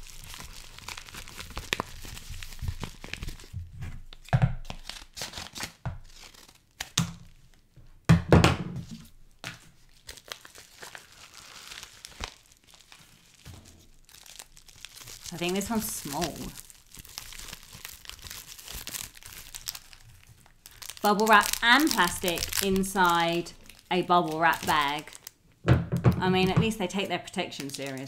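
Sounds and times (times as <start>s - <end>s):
packaging crinkling: 0.0s - 7.5s, 9.4s - 25.4s, 26.7s - 28.0s
plastic mailer tearing: 10.0s - 25.3s, 27.5s - 28.0s.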